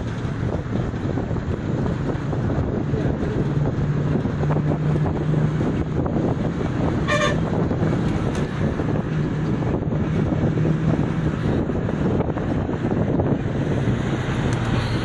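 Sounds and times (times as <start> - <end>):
vehicle engine and road noise: 0.0 - 15.0
vehicle horn toot: 7.0 - 7.6.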